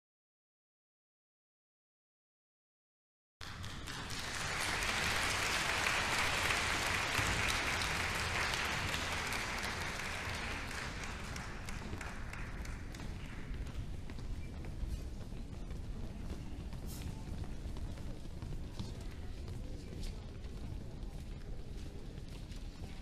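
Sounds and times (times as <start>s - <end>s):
audience applauding: 3.4s - 13.8s.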